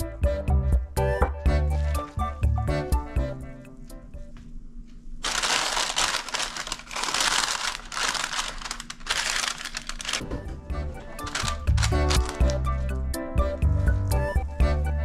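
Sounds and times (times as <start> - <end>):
parchment paper crinkling: 5.2 - 10.4, 11.0 - 12.8.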